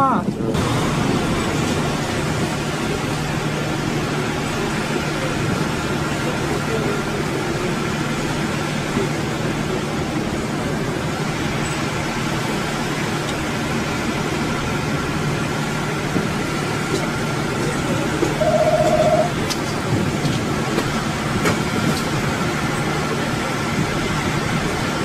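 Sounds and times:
boat engine droning: 0:00.6 - 0:25.0
steady tone: 0:18.4 - 0:19.4.

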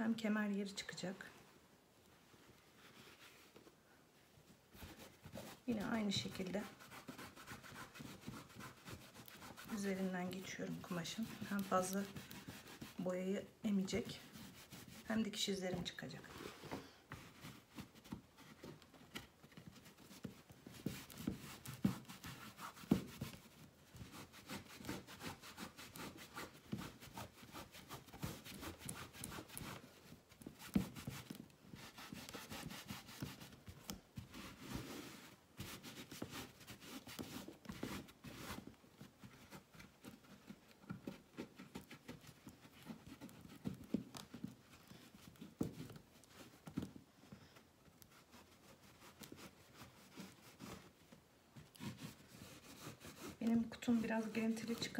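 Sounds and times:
cloth rustling and scuffing: 0:02.1 - 0:54.9.

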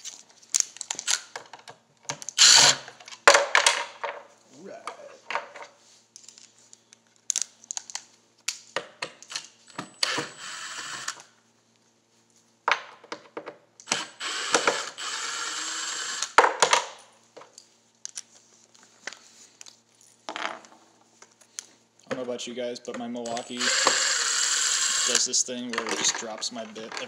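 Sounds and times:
cordless drill running: 0:02.4 - 0:02.9, 0:10.0 - 0:11.3, 0:13.8 - 0:16.4, 0:23.3 - 0:25.4.

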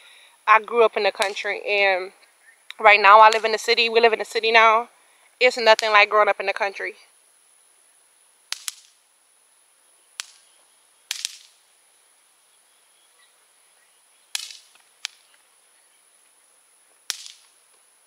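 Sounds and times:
small fireworks popping: 0:00.7 - 0:04.4, 0:05.3 - 0:07.6, 0:08.2 - 0:11.8, 0:14.2 - 0:18.0.

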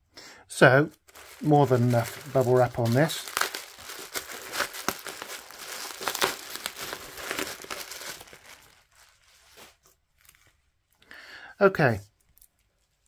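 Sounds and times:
bubble wrap crinkling: 0:00.9 - 0:11.0.

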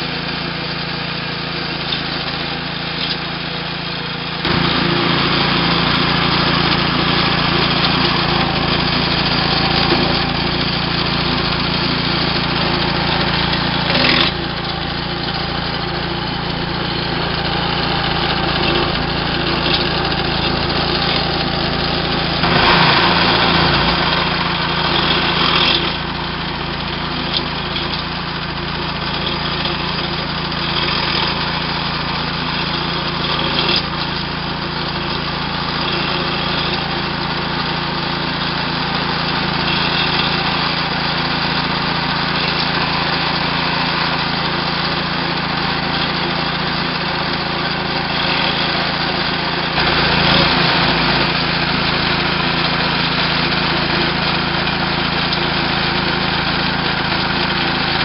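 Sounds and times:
small gas engine running: 0:00.0 - 0:58.0
blade cutting through soil: 0:04.4 - 0:58.0.

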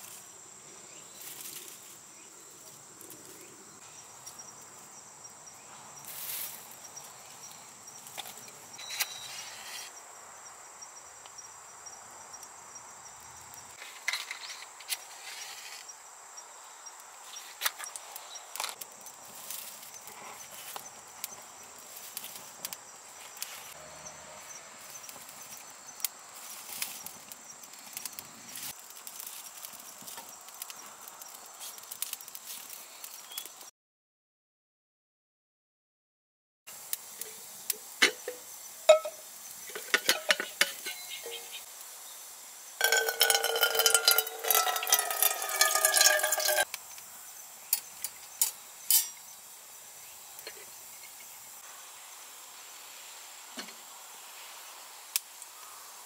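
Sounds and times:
insects trilling: 0:00.0 - 0:33.6, 0:36.7 - 0:56.0
wood fire crackling: 0:17.0 - 0:23.8, 0:24.8 - 0:33.5, 0:42.8 - 0:46.8.

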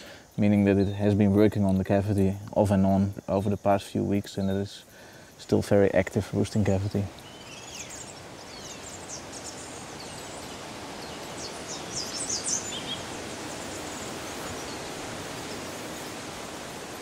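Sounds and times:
steady background hiss: 0:00.0 - 0:17.0.

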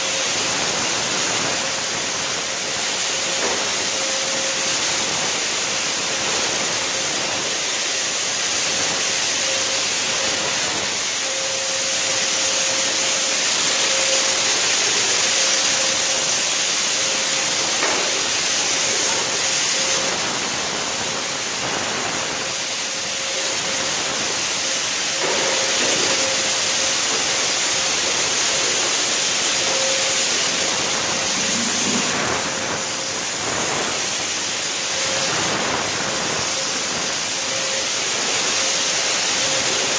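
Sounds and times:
fogger blower hissing: 0:00.0 - 0:39.9
faint whine: 0:28.6 - 0:34.0.

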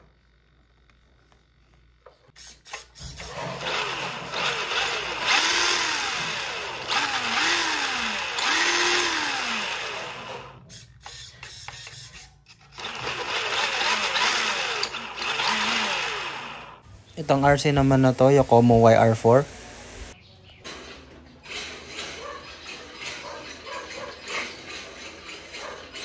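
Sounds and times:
toy car electric motor whining: 0:02.3 - 0:16.8.

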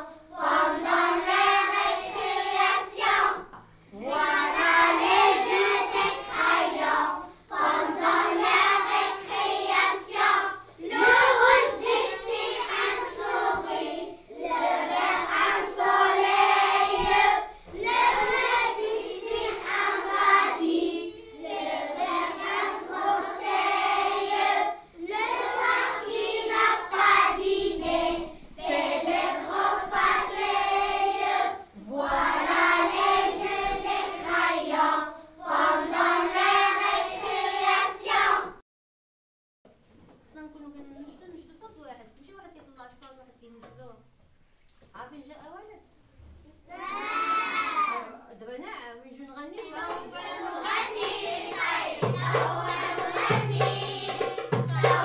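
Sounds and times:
high voices singing together: 0:00.0 - 0:38.6, 0:49.7 - 0:55.0.

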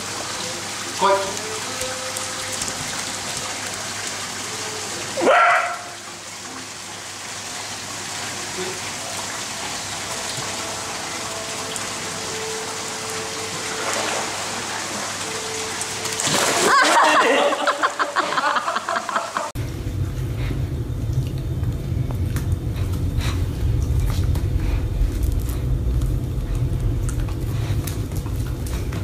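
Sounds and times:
water spraying from a hose: 0:00.0 - 0:18.1.

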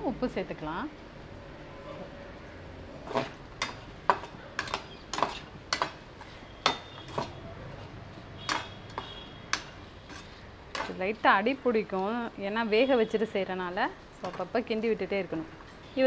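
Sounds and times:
metal spatula scraping pan: 0:02.9 - 0:11.0.

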